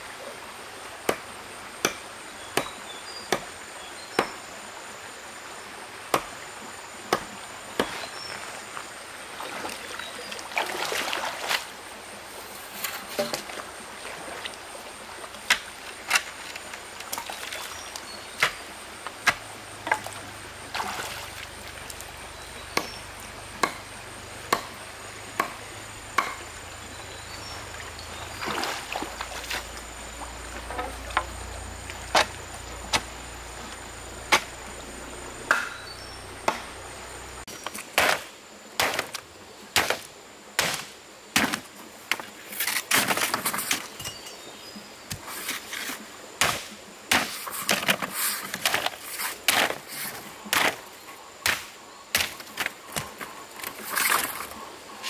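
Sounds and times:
rustling scrapes: 0:45.2 - 0:46.0, 0:47.3 - 0:50.8.

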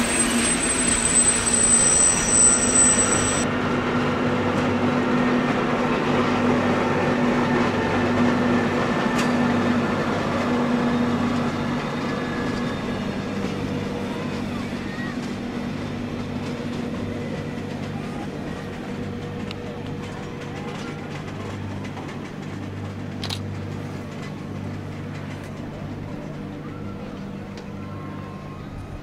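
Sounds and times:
thin high whine: 0:00.0 - 0:03.5
electric locomotive hum: 0:00.0 - 0:29.0
train rolling noise: 0:00.0 - 0:29.0.

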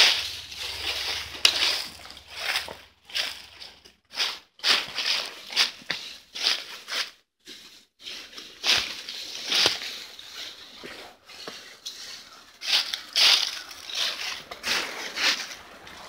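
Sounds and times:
footsteps crunching dry leaves: 0:00.0 - 0:16.0.

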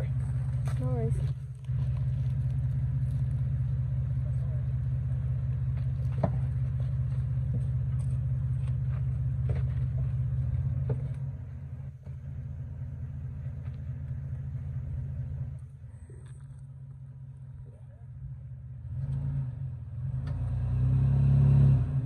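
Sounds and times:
engine idling: 0:00.0 - 0:20.4.

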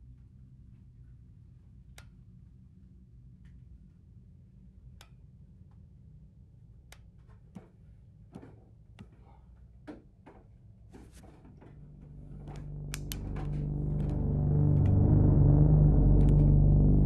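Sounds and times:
low hum: 0:11.2 - 0:17.0
deep drone: 0:11.5 - 0:17.0.

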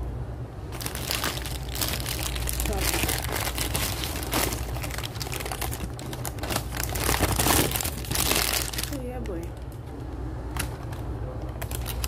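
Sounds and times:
paper wrapper crinkling: 0:00.7 - 0:09.0, 0:11.6 - 0:12.0.

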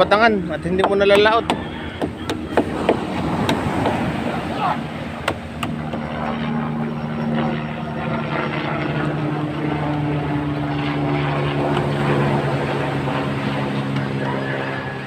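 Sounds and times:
engine running steadily: 0:00.0 - 0:15.0
breaking surf: 0:02.1 - 0:05.9.

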